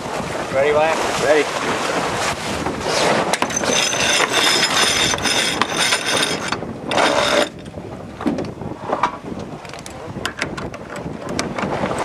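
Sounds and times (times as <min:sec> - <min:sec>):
winch ratcheting clicks: 0:03.4 - 0:07.5.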